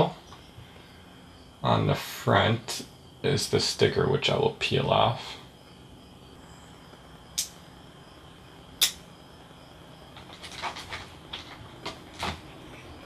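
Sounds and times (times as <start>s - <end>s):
sharp plastic clicks: 8.8s - 9.0s.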